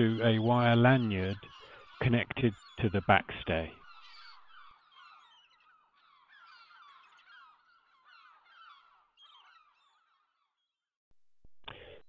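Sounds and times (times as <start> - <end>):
many birds chirping: 0.0 - 10.8.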